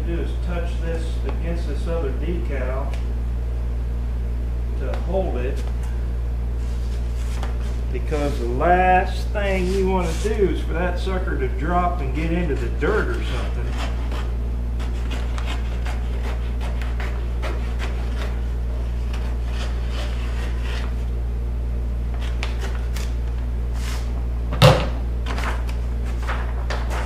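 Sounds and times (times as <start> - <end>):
scissors cutting vinyl: 12.5 - 21.0.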